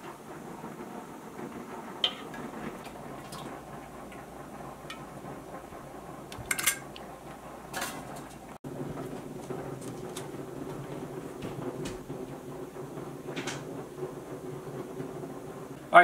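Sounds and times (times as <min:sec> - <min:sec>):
steady low hiss: 0:00.0 - 0:16.0
glass jars clinking: 0:06.4 - 0:06.9.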